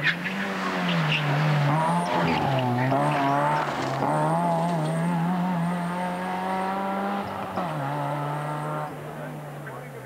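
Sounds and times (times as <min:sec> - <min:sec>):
rally car engine revving: 0:00.0 - 0:10.0.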